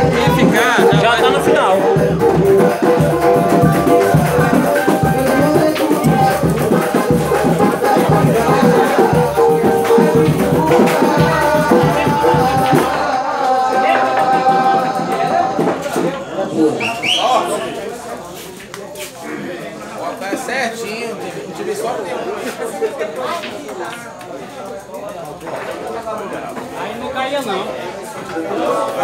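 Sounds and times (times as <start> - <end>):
loud music with steady beat: 0.0 - 13.1
voices: 0.0 - 29.0.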